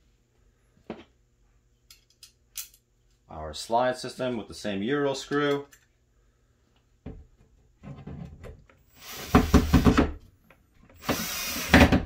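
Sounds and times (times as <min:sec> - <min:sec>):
cordless drill driving screw: 0:08.8 - 0:09.9, 0:11.0 - 0:12.0.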